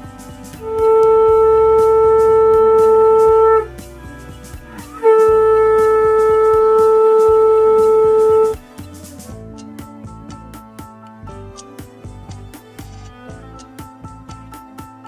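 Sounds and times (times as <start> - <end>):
faint music with light beat: 0.0 - 15.0
conch shell blasts: 0.6 - 3.7, 4.7 - 8.6.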